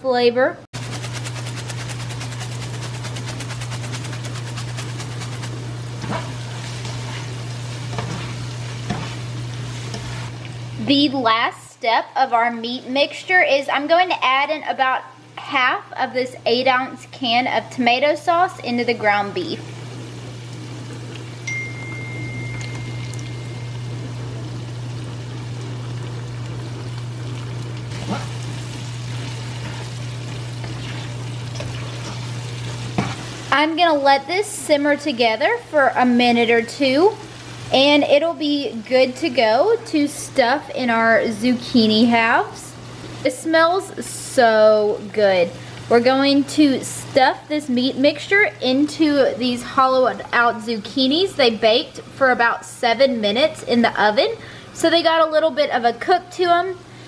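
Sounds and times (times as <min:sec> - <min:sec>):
food sizzling in a frying pan: 0:00.8 - 0:11.2, 0:17.6 - 0:55.3
spatula scraping a pan: 0:00.9 - 0:10.3, 0:29.4 - 0:30.0, 0:30.6 - 0:33.4.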